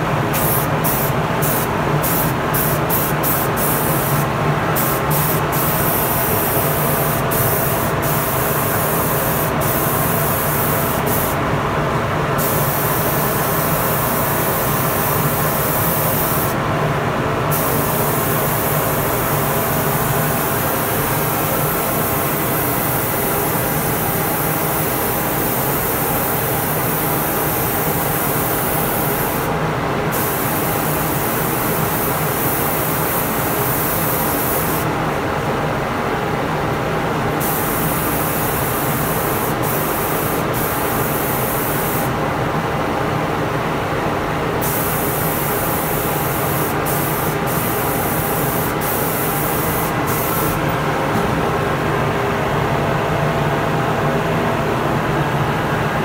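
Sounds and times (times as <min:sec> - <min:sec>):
spray gun hissing: 0:00.3 - 0:11.4, 0:12.4 - 0:16.6, 0:17.5 - 0:29.5, 0:37.4 - 0:42.1, 0:44.6 - 0:50.6.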